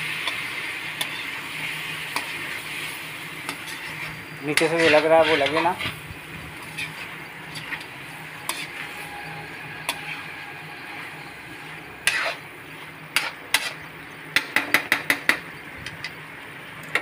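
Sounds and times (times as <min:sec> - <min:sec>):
food sizzling: 0:00.0 - 0:17.0
spatula scraping metal pan: 0:00.2 - 0:01.4, 0:03.4 - 0:13.9.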